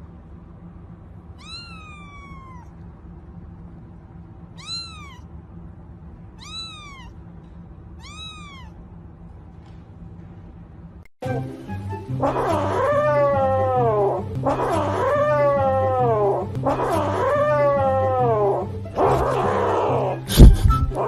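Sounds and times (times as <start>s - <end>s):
steady low hum: 0.0s - 11.1s
kitten meowing: 1.4s - 2.7s, 4.6s - 5.3s, 6.4s - 7.2s, 8.0s - 8.8s.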